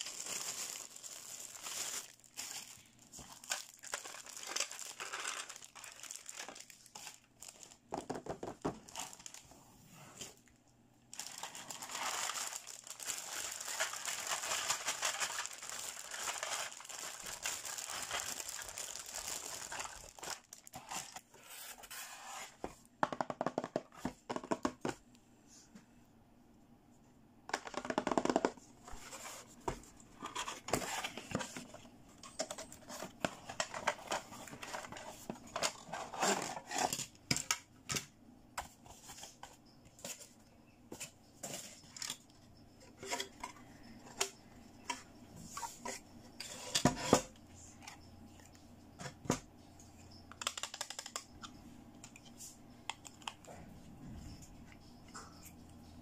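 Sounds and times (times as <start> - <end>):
plastic packaging crinkling: 0.0 - 9.5, 11.1 - 21.2, 29.1 - 37.6.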